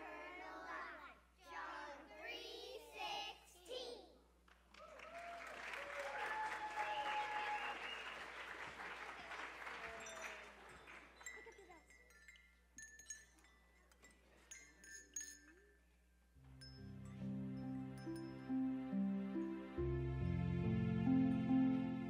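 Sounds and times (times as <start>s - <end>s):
applause: 4.4s - 11.4s
handbells tinkling: 9.8s - 18.6s
instrumental music: 16.4s - 22.0s.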